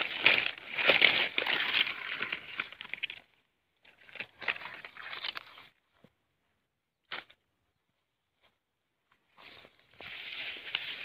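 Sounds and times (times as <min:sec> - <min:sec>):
leaves and dry grass rustling: 0:00.0 - 0:05.9, 0:09.1 - 0:11.0.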